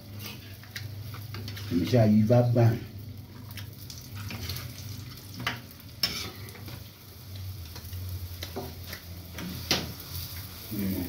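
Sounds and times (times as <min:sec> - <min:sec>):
food sizzling in a frying pan: 0:00.0 - 0:11.0
spatula scraping a pan: 0:05.4 - 0:06.7.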